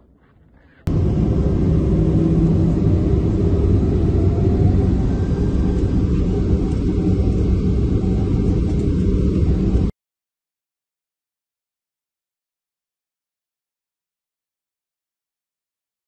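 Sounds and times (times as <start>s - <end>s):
jet engines roaring: 0.9s - 9.9s.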